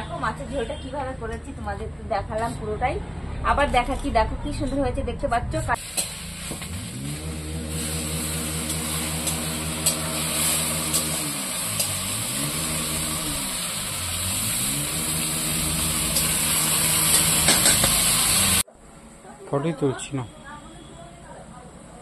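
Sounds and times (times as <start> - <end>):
leaves sizzling in a wok: 5.8 - 18.6
engine running: 6.0 - 18.6.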